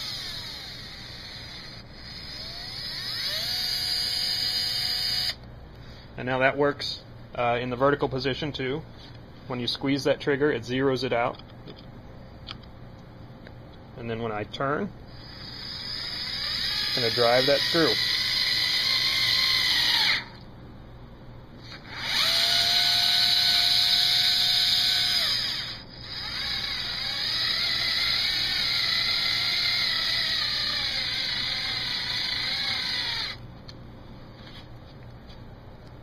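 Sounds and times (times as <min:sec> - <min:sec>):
cordless screwdriver motor whining: 0:00.0 - 0:05.4, 0:15.2 - 0:20.4, 0:21.7 - 0:33.4.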